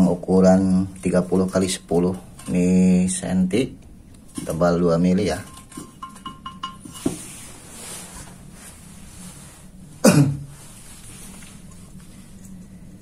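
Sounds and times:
person coughing: 0:10.0 - 0:10.5.

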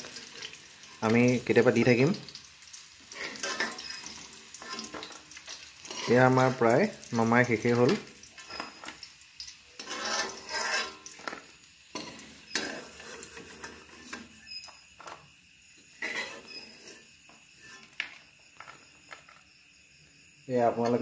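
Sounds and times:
steel spoon scraping a pan: 0:03.1 - 0:06.6, 0:08.4 - 0:09.0, 0:09.7 - 0:15.2, 0:15.8 - 0:19.4.

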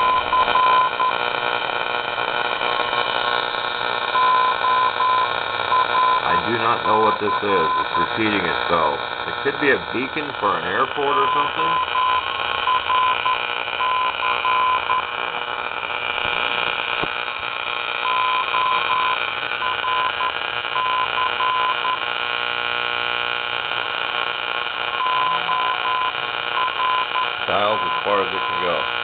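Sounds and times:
morse code tone: 0:00.0 - 0:01.2, 0:04.2 - 0:08.4, 0:10.9 - 0:15.1, 0:18.0 - 0:22.0, 0:25.0 - 0:28.8
radio static hiss: 0:00.0 - 0:29.0.

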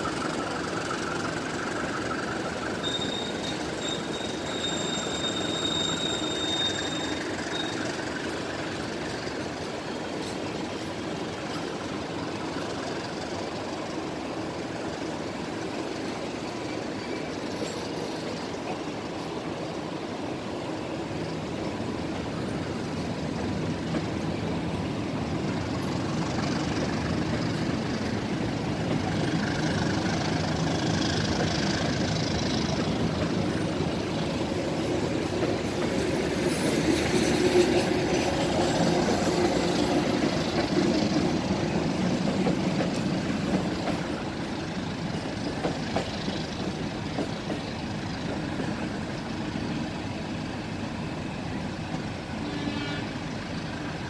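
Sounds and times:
high wheel squeal: 0:00.0 - 0:09.4
train wheels rumbling on track: 0:00.0 - 0:54.0.

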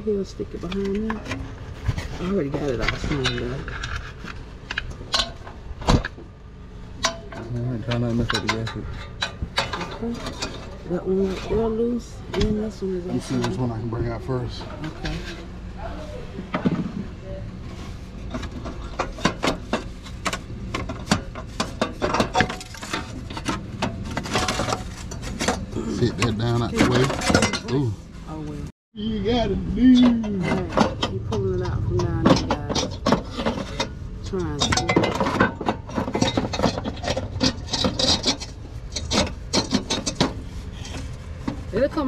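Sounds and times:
metal scraping and rubbing: 0:00.0 - 0:28.7, 0:29.3 - 0:42.0
metal parts rattling: 0:00.6 - 0:06.1, 0:07.0 - 0:11.7, 0:18.2 - 0:28.1, 0:30.0 - 0:41.8
sharp metallic clicks and knocks: 0:30.0 - 0:40.4.

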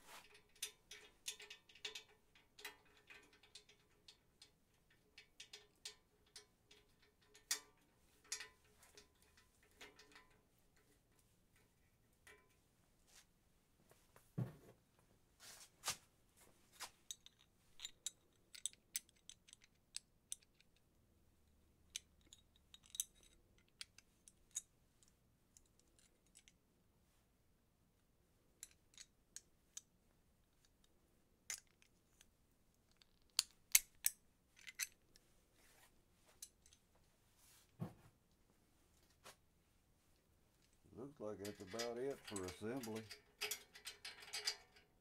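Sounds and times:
pliers and bolts clicking: 0:17.1 - 0:20.8, 0:21.9 - 0:24.7, 0:41.4 - 0:44.9.

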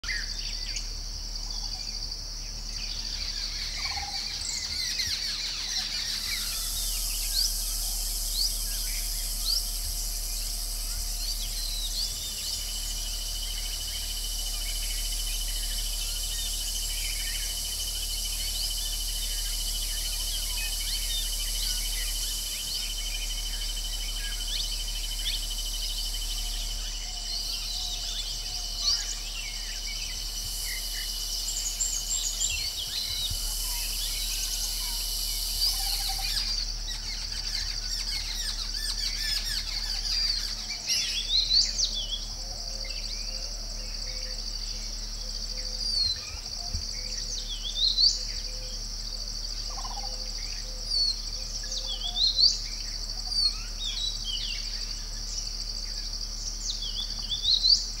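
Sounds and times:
high-pitched background drone: 0:00.0 - 0:55.8
birds chirping and whistling: 0:02.6 - 0:42.4.

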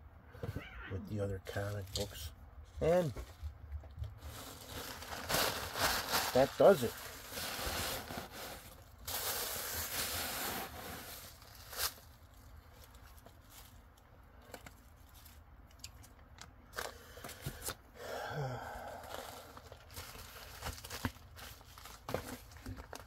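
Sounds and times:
plastic bag rustling and crinkling: 0:01.5 - 0:16.1, 0:19.0 - 0:23.0.

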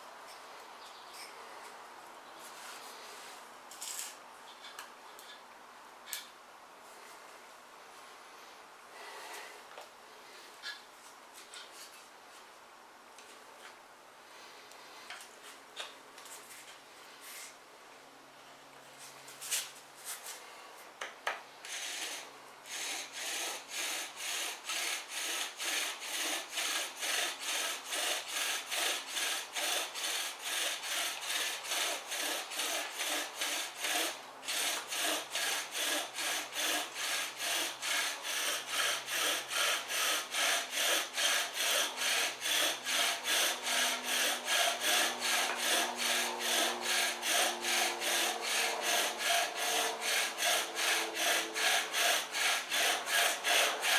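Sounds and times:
bow drill rhythmic rasping: 0:21.7 - 0:53.9.

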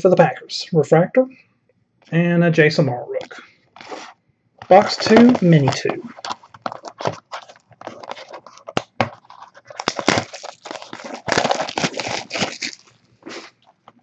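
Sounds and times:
wrappers tearing and crinkling: 0:04.7 - 0:14.0.

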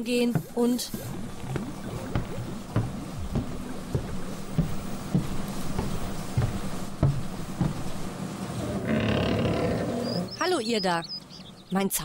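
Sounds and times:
dull thumps: 0:00.0 - 0:08.2
low steady hum: 0:00.0 - 0:12.0.

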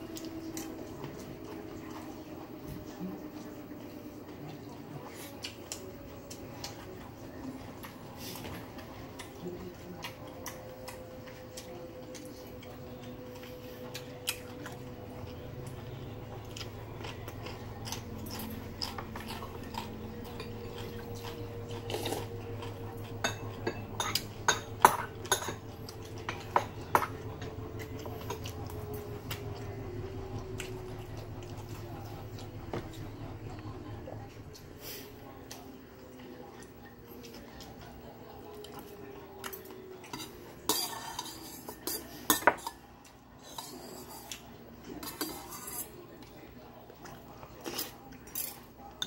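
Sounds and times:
chewing food: 0:00.0 - 0:49.0
cutlery and dishes clinking: 0:23.1 - 0:27.2, 0:39.4 - 0:46.0.

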